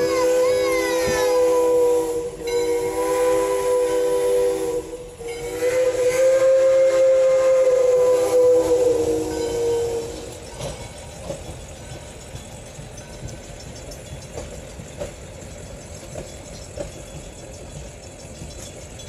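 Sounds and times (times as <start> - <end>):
steam locomotive chime whistle: 0.0 - 10.9.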